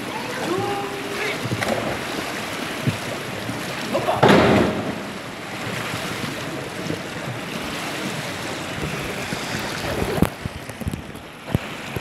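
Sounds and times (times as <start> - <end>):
pool water splashing: 0.0 - 12.0
sharp water slap: 1.4 - 3.1, 3.9 - 5.3.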